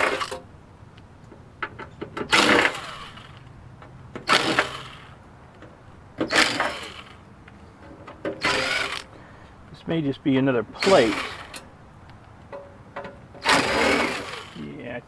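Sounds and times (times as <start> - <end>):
cordless drill driving screws: 0.0 - 0.4, 2.2 - 3.4, 4.2 - 5.1, 6.2 - 7.2, 8.4 - 9.1, 10.8 - 11.7, 13.4 - 14.6.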